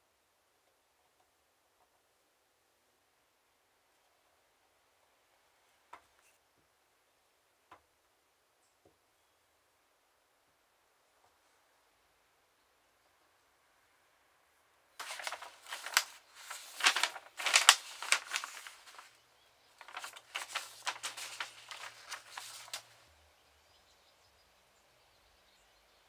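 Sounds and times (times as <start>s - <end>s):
paper sheets rustling: 15.0s - 19.2s, 19.8s - 23.0s.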